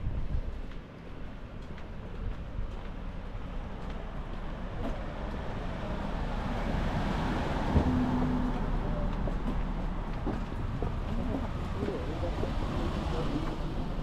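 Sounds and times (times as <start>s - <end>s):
vehicle passing: 5.2s - 14.0s.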